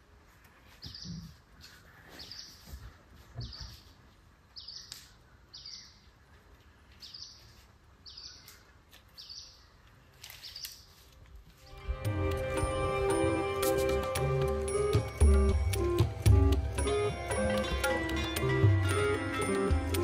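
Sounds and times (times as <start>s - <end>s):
bird chirping: 0.7s - 11.0s.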